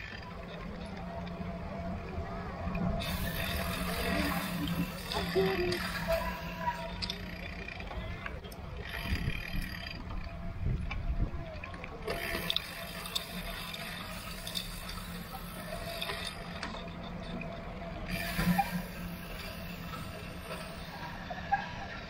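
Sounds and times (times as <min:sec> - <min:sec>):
tyres hissing on wet road: 0:03.0 - 0:06.8, 0:18.1 - 0:21.5
freewheel ratchet ticking: 0:03.0 - 0:10.9, 0:12.1 - 0:16.8.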